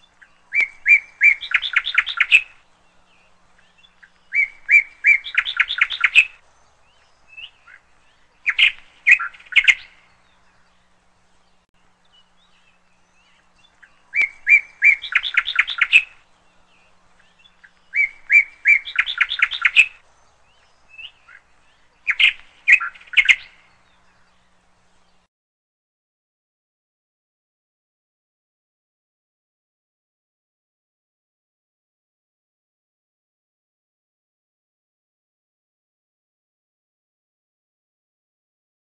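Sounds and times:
songbird chirping and trilling: 0:00.0 - 0:25.3.

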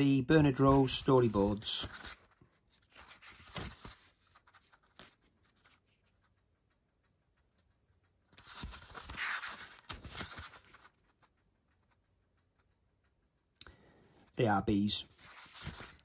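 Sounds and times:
paper pages rustling: 0:00.4 - 0:06.7, 0:08.2 - 0:12.8, 0:14.7 - 0:16.0.

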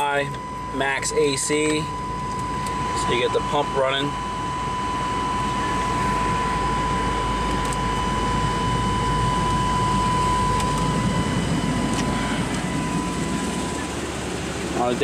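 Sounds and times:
air conditioning fan blowing: 0:00.0 - 0:15.0
car engine running: 0:00.0 - 0:15.0.

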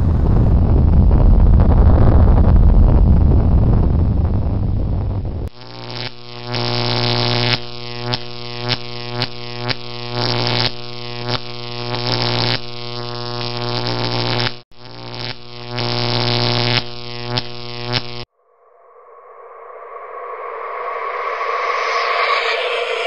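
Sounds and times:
low synthesizer drone: 0:18.3 - 0:23.0.

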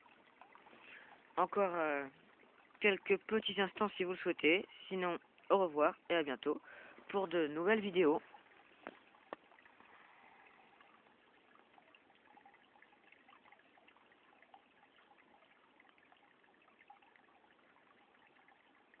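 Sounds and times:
faint trickling water: 0:00.0 - 0:19.0
small irregular ticks: 0:08.4 - 0:19.0.

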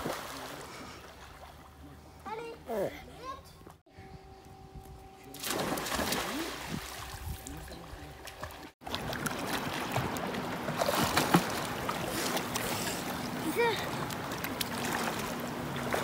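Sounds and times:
water rushing and splashing: 0:00.0 - 0:01.8, 0:05.4 - 0:16.0.

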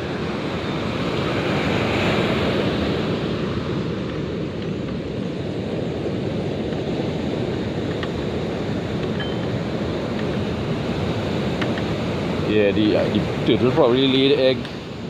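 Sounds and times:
rough sea surf roaring: 0:00.0 - 0:15.0
wind buffeting microphone: 0:00.0 - 0:15.0.

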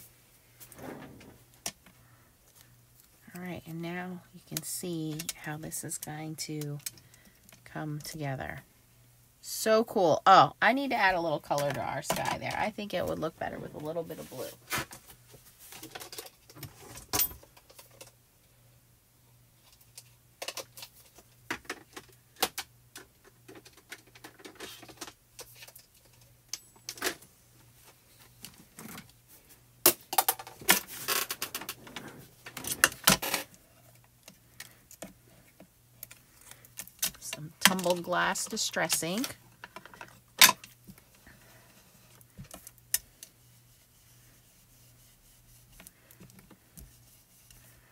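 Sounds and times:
faint steady hum: 0:00.0 - 0:47.9.

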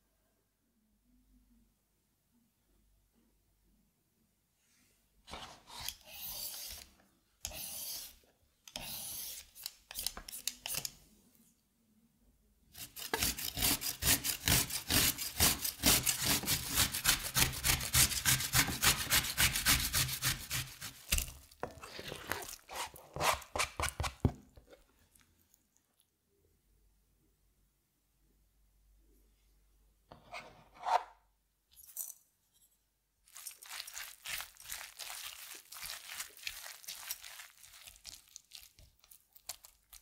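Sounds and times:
cucumber grated on metal grater: 0:12.8 - 0:21.3.

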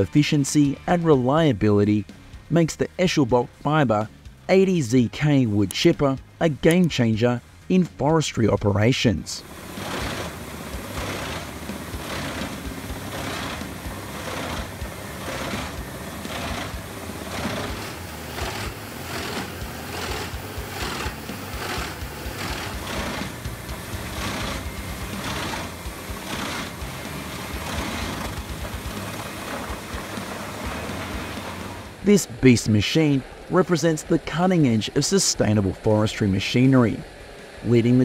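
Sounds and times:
wood chipper grinding log: 0:09.4 - 0:34.8.

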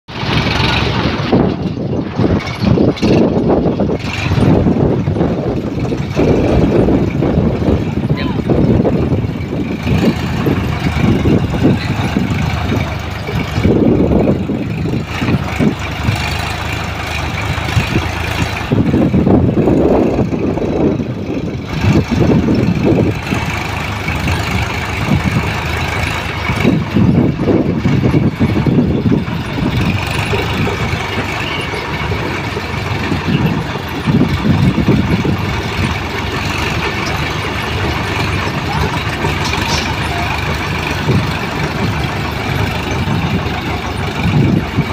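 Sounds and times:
tractor diesel engines under load: 0:00.0 - 0:44.9.

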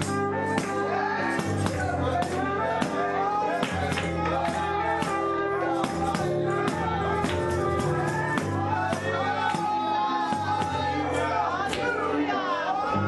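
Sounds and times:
choir singing: 0:00.0 - 0:13.0
keyboard chords: 0:00.0 - 0:13.0
bass line: 0:03.7 - 0:09.7.

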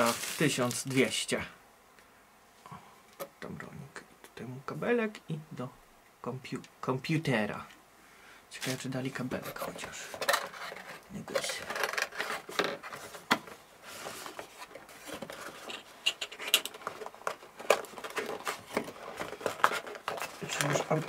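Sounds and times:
cardboard box rustling: 0:09.5 - 0:16.0, 0:16.7 - 0:21.0.

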